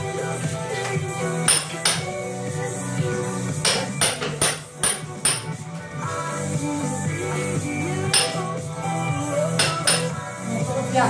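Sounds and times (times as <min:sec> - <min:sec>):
hammer striking steel chisel: 0:01.5 - 0:02.1, 0:03.6 - 0:05.6, 0:08.1 - 0:08.5, 0:09.6 - 0:10.2.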